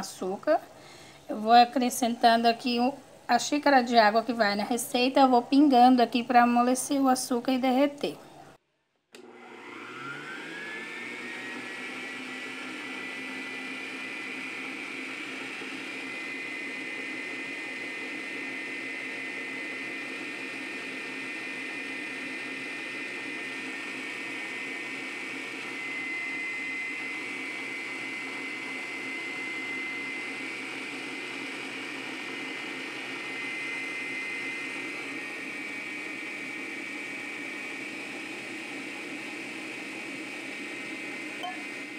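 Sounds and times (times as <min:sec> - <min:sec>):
stand mixer motor whine: 0:09.1 - 0:41.9.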